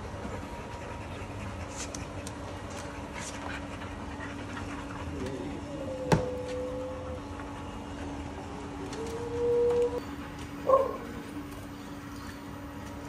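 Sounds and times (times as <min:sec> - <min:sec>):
dogs panting: 0:00.0 - 0:09.1
steady low hum: 0:00.0 - 0:13.0
dog whining: 0:05.0 - 0:07.7, 0:08.3 - 0:11.2.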